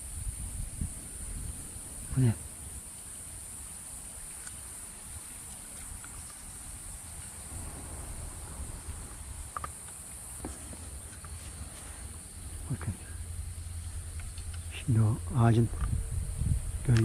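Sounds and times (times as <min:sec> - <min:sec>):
cicadas buzzing: 0:00.0 - 0:17.0
low rumble: 0:10.8 - 0:17.0.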